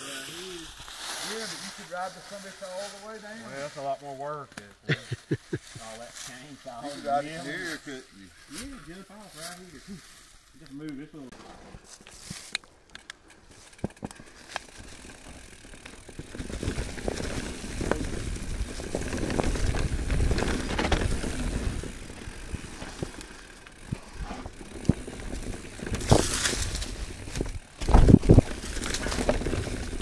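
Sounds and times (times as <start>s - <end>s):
bike rattling and clicking: 12.5s - 30.0s
bike tyres rolling over rocks: 13.2s - 30.0s.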